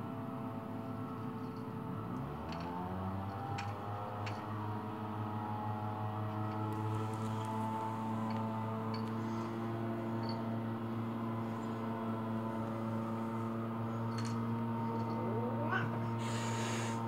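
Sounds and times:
cat growling: 0:14.9 - 0:17.0
cat yowl: 0:15.2 - 0:17.0.

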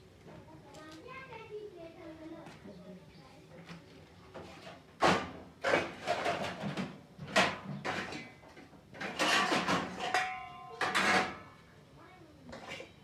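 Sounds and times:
metal pots and plates clattering: 0:05.0 - 0:08.4, 0:09.0 - 0:11.6, 0:12.5 - 0:13.0.

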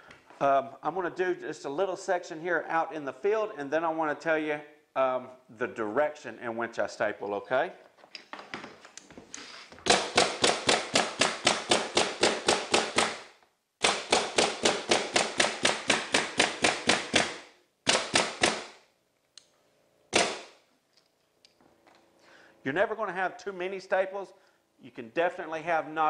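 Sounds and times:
pneumatic stapler shots: 0:09.4 - 0:18.8, 0:20.1 - 0:20.6.

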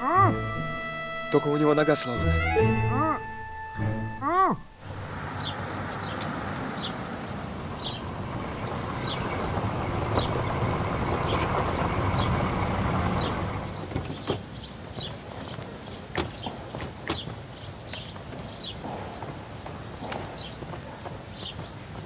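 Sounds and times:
vehicle rolling rumble: 0:04.8 - 0:15.2.

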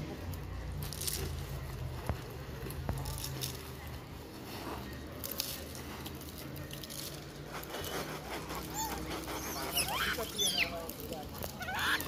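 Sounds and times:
peanuts pattering onto pavement: 0:00.1 - 0:12.0
monkey squealing: 0:08.5 - 0:12.0.

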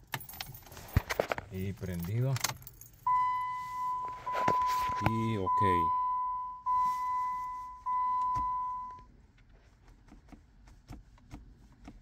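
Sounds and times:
high electronic warning tone: 0:03.1 - 0:09.0.

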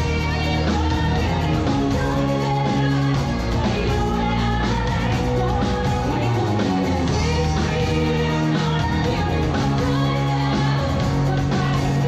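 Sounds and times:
live band playing: 0:00.0 - 0:12.0
women singing: 0:00.0 - 0:12.0.

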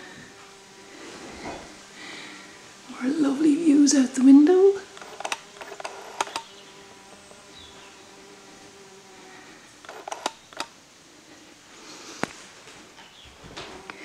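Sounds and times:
faint steady hum: 0:00.0 - 0:14.0
sharp clicks: 0:04.9 - 0:06.5, 0:09.8 - 0:10.8.

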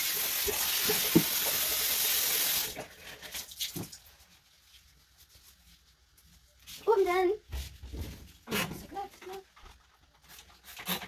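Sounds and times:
bathroom tap running: 0:00.0 - 0:04.1.

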